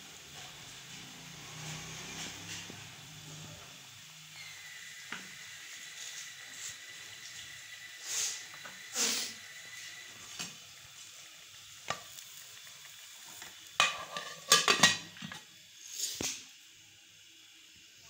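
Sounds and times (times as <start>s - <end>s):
curry simmering with bubbling pops: 0.2s - 16.6s
metal lid clattering onto pot: 13.8s - 15.4s.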